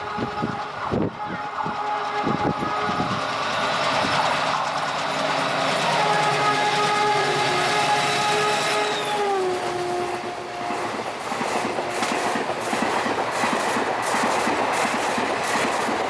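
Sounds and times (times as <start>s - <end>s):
train horn chord: 0.0s - 3.6s, 5.3s - 12.5s
train coaches rushing past: 0.0s - 16.0s
wheels clacking over rail joints: 0.0s - 16.0s.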